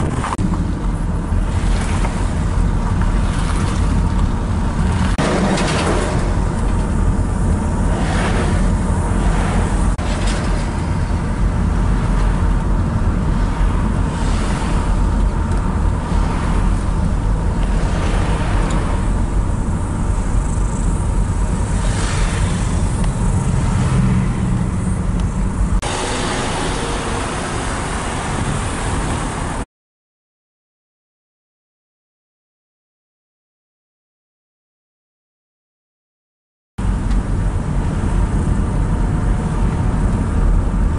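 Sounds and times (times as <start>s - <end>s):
car cabin road rumble: 0.0s - 29.6s, 36.8s - 40.9s
passing vehicles whooshing: 0.0s - 29.6s.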